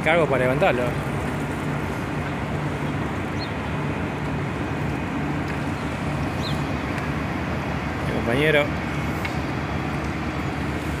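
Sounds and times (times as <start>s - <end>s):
low drone of heavy machinery: 0.0s - 11.0s.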